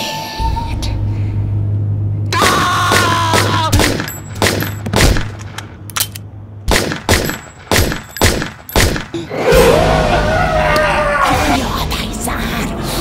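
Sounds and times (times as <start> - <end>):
pistol shots: 2.4 - 5.6, 6.7 - 9.1.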